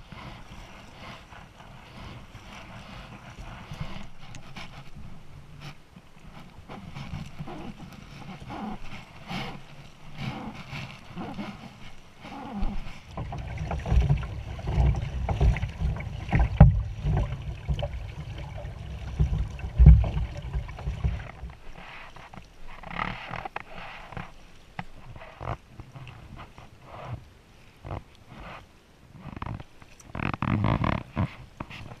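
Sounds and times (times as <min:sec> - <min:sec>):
paddle dipping through water: 0:00.0 - 0:32.0
low thumps against boat: 0:12.6 - 0:21.6
water splashing and dripping: 0:13.1 - 0:21.8.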